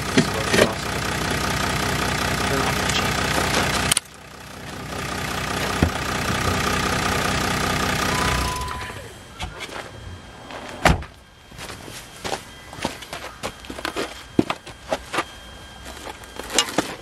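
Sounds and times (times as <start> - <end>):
steady engine: 0.0 - 9.5.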